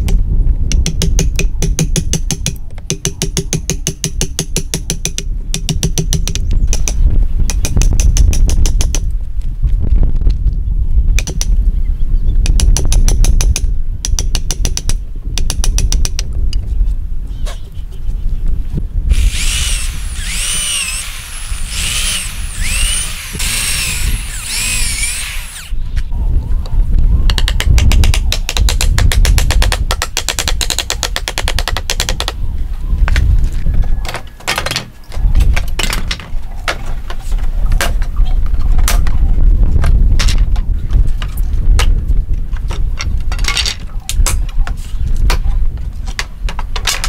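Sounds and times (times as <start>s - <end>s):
electric drill boring into wood: 19.1s - 25.8s.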